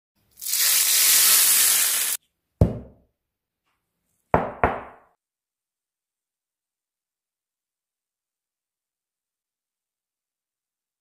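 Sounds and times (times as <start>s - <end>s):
hot ghee sizzling: 0.3s - 2.2s
cutting board knocking on counter: 2.6s - 3.0s, 4.4s - 5.0s.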